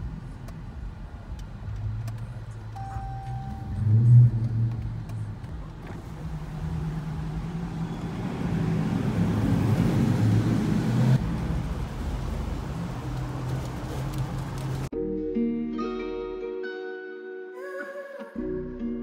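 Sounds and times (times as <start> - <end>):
car engines and exhaust rumbling: 0.0 - 14.9.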